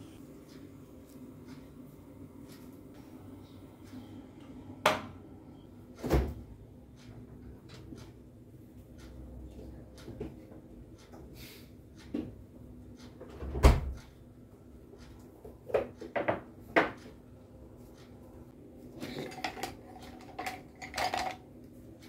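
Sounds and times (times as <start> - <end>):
wooden utensils clattering in cup: 19.0 - 21.4.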